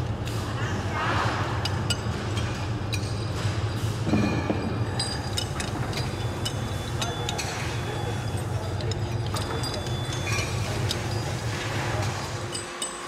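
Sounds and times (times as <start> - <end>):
steady low hum: 0.0 - 13.0
ringing metal clinks: 4.1 - 13.0.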